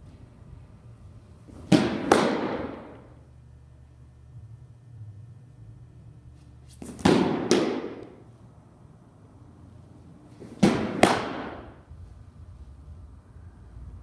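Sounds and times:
ball smacking into leather mitt: 1.6s - 2.9s, 6.8s - 8.2s, 10.4s - 11.7s.

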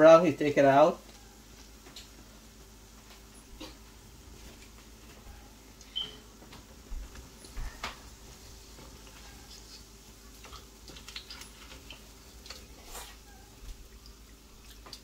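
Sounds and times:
dough deep-frying in oil: 0.0s - 15.0s.

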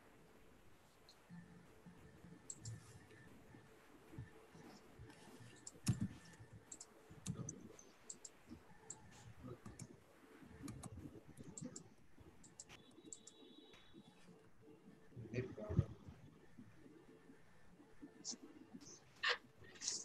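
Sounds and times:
faint clicks and taps: 0.9s - 14.6s.

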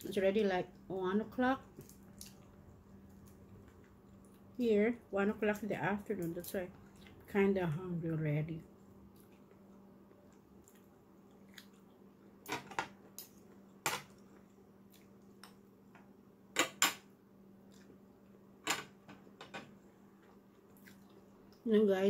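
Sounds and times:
soft chewing: 1.6s - 4.6s, 6.2s - 7.3s, 8.6s - 12.3s, 13.0s - 15.8s, 17.6s - 18.5s, 19.8s - 21.7s.

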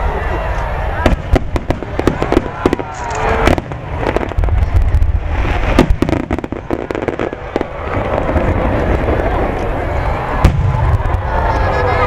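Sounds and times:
fireworks crackling: 0.4s - 12.0s
fireworks bangs: 0.6s - 12.0s
low rumble: 7.3s - 12.0s.

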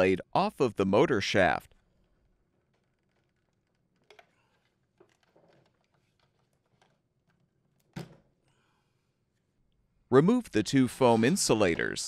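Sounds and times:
plastic clicks and rustling: 1.7s - 8.2s.

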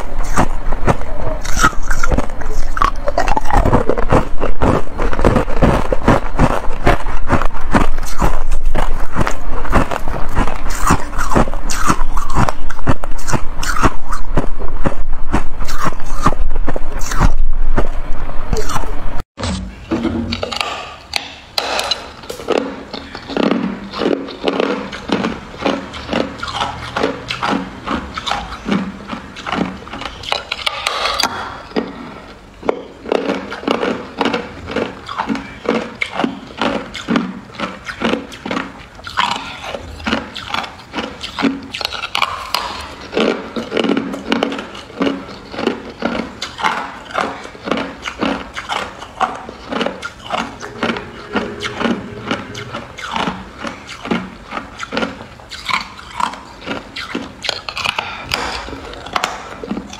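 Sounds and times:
ice crunching between teeth: 0.0s - 18.9s, 21.6s - 32.0s, 32.6s - 59.9s.

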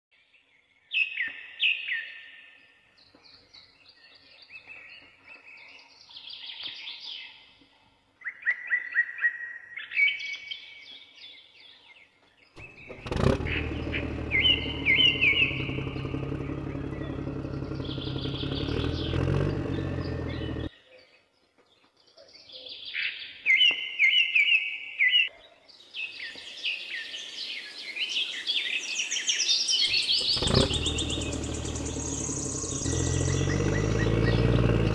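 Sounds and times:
small birds chirping: 0.2s - 34.9s
steady motor running: 12.6s - 20.7s, 29.9s - 34.9s.

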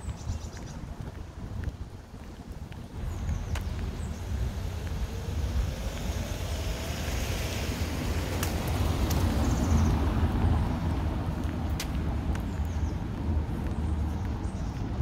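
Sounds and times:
low traffic rumble: 0.0s - 15.0s
vehicle passing: 2.9s - 15.0s
faint sharp clicks: 8.4s - 9.3s, 11.7s - 12.4s.

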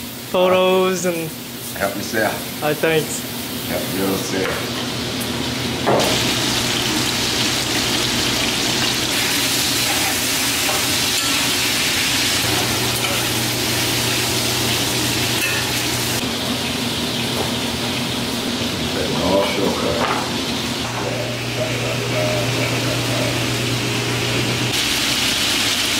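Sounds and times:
meat sizzling in a skillet: 0.7s - 18.6s, 24.6s - 25.9s.

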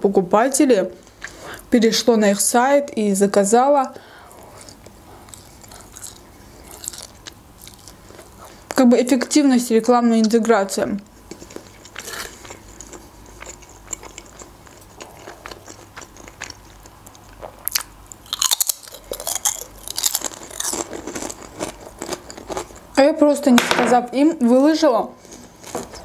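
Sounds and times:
quiet chewing: 3.9s - 8.8s, 11.2s - 22.9s
potato chip bite and crunching: 4.6s - 8.4s, 11.3s - 22.8s.

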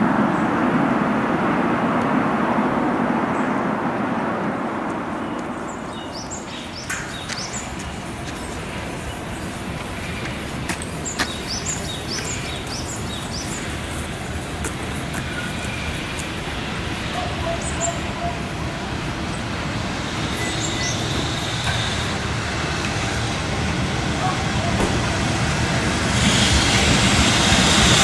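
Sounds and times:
freight train rumble: 0.0s - 28.0s
small birds chirping: 5.2s - 14.6s, 20.3s - 21.6s.

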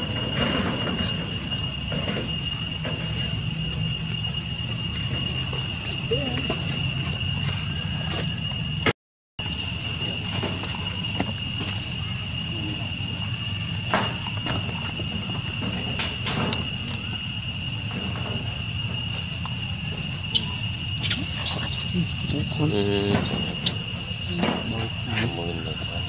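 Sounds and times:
insects droning: 0.0s - 26.0s
monkeys squealing: 20.3s - 26.0s.

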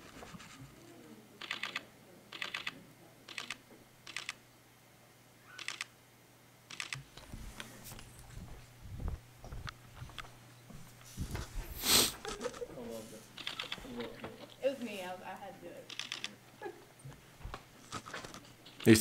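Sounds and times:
camera shutter clicks: 2.4s - 4.4s, 5.6s - 5.9s, 6.7s - 7.1s, 13.4s - 13.8s, 15.9s - 16.4s.

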